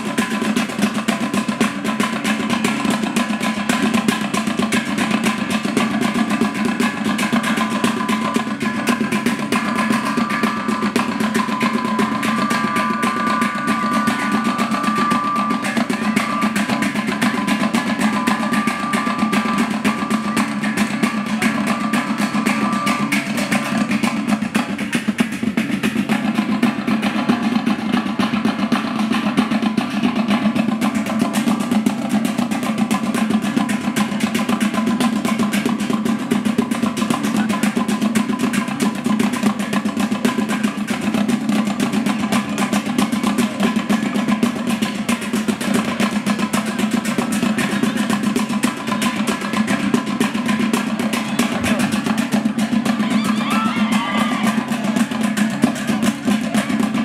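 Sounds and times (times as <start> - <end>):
drums beating fast: 0.0 - 57.0
high held note: 9.6 - 23.7.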